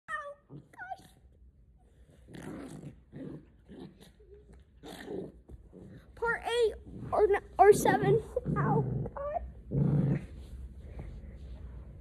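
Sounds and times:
small dog play-growling: 2.0s - 10.5s.

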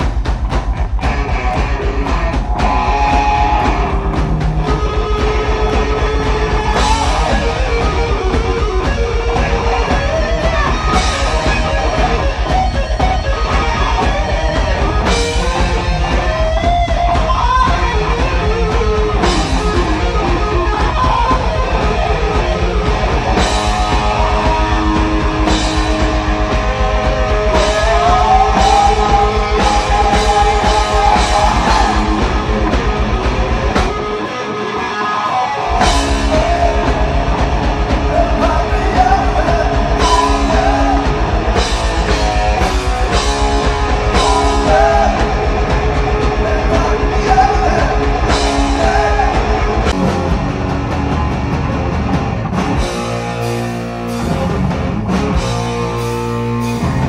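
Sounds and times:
distorted electric guitars: 0.0s - 57.0s
heavy metal band playing live: 0.0s - 57.0s
person singing: 27.2s - 32.7s, 34.8s - 50.0s.

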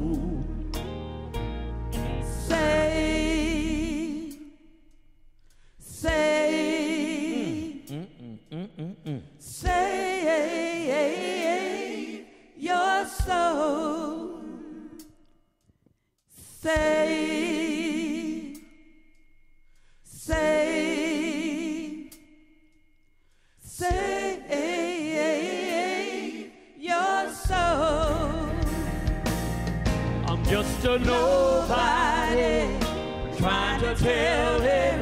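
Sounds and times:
backing track with bass: 0.0s - 4.5s, 27.5s - 35.0s.

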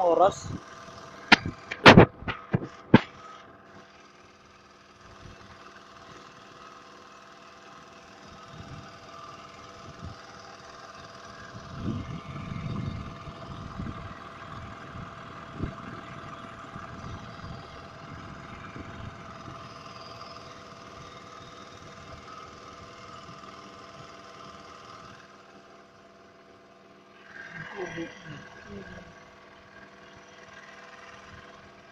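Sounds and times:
small engine humming: 0.0s - 31.9s
low thumps and rumbles: 1.3s - 3.1s.

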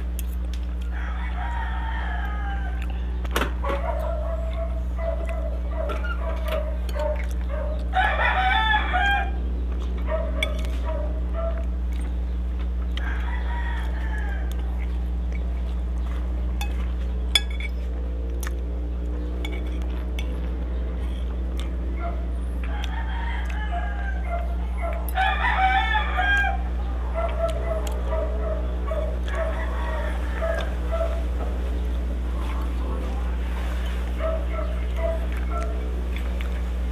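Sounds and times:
roosters crowing: 0.0s - 36.9s
steady low hum: 0.0s - 36.9s
cutlery clinking on a plate: 16.6s - 17.8s, 19.4s - 20.4s.

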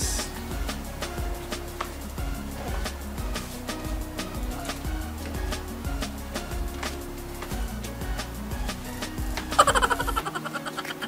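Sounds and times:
background music: 0.0s - 11.0s
bright rapidly repeated notes: 0.0s - 11.0s.

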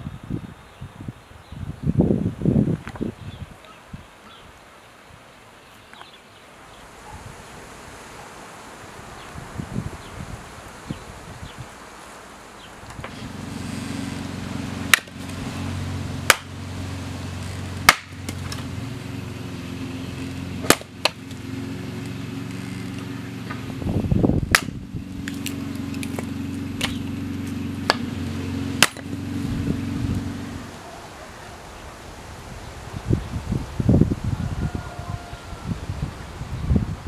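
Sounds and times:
steady low hum: 13.1s - 30.9s
axe splitting firewood: 14.8s - 18.8s, 20.1s - 23.8s, 24.4s - 29.4s.

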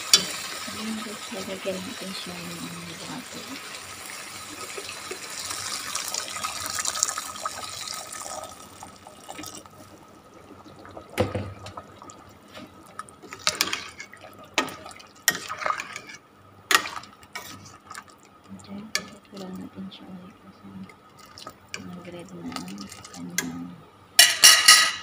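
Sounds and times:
water pouring into a metal pot: 0.0s - 9.9s.

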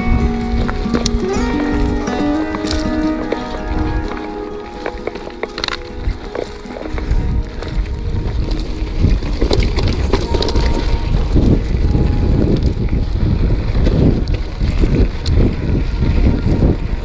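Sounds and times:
wind buffeting microphone: 0.0s - 17.0s
bike rattling and knocking: 5.3s - 17.0s.

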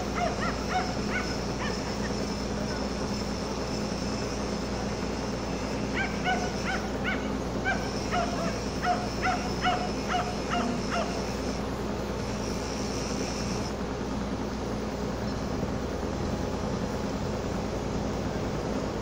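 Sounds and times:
low machinery hum: 0.0s - 19.0s
animal short harsh calls: 5.9s - 11.4s.

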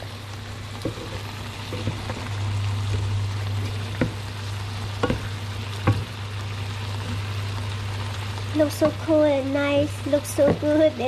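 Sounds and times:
soup simmering in a pan: 0.0s - 11.0s
steady low hum: 0.0s - 11.0s
wooden spatula knocking on pan: 0.8s - 2.3s, 3.9s - 4.2s, 5.0s - 6.1s, 10.4s - 10.7s.

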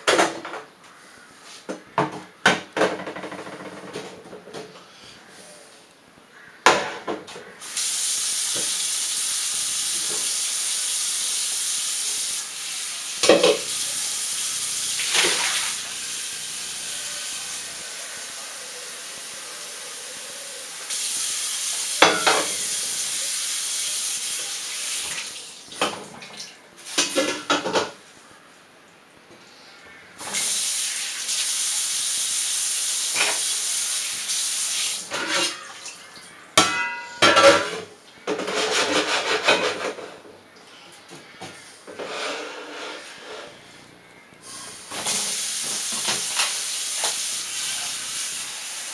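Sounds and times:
tap water running into pot: 7.7s - 17.7s, 20.9s - 26.1s, 44.7s - 48.9s
metal pot clanking: 22.1s - 22.5s, 36.6s - 37.8s.

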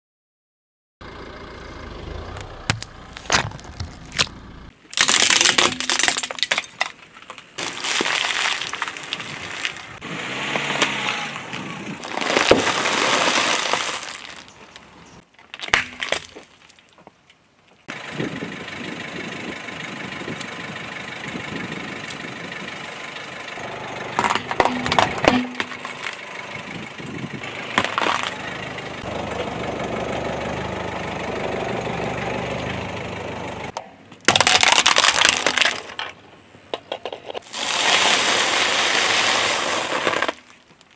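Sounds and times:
car engine running: 1.0s - 4.8s, 17.9s - 33.8s
tyre crushing objects: 2.7s - 7.0s, 7.6s - 10.0s, 11.8s - 14.6s, 24.2s - 26.2s, 27.7s - 28.4s, 34.2s - 36.1s, 37.2s - 40.9s.

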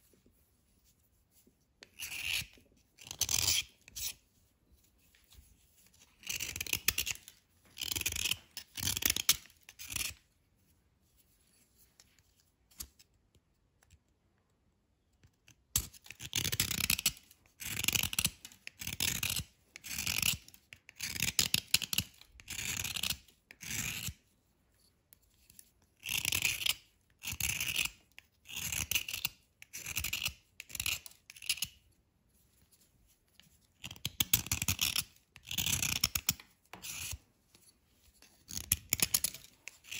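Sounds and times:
knife scraping a crumbly bar: 1.8s - 4.2s, 5.0s - 10.2s, 15.8s - 24.3s, 25.2s - 31.9s, 33.4s - 39.9s.

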